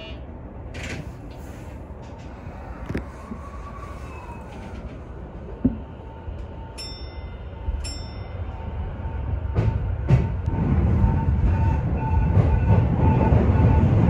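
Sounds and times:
train low hum and whine: 0:00.0 - 0:14.0
train rumbling: 0:00.0 - 0:14.0
bell-like chimes: 0:06.8 - 0:08.6.

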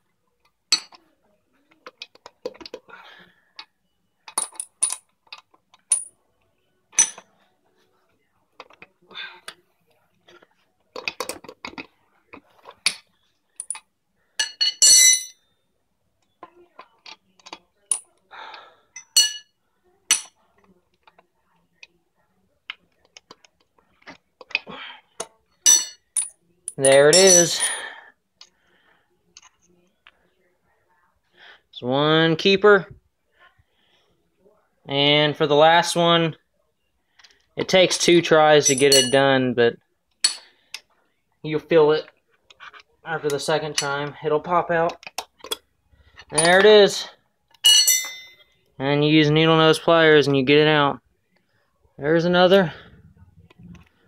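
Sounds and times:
metal tools clinking: 0:04.3 - 0:06.2, 0:06.9 - 0:07.3, 0:12.7 - 0:15.4, 0:19.0 - 0:20.3, 0:25.6 - 0:28.0, 0:38.6 - 0:39.3, 0:40.2 - 0:40.5, 0:46.2 - 0:48.6.

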